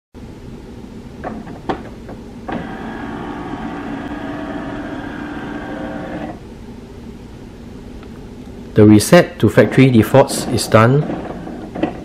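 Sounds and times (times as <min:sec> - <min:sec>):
printer carriage motor whirring: 0:02.4 - 0:06.4, 0:09.6 - 0:12.0.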